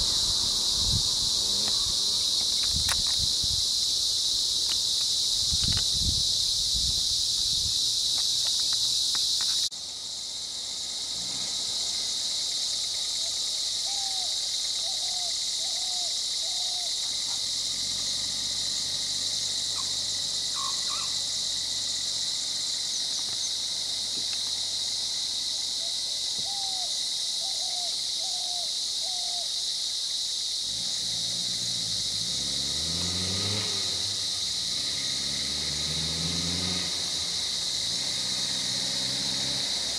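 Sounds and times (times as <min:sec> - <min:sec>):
shrill insect chorus: 0:00.0 - 0:39.9
bird chirping: 0:20.6 - 0:21.2.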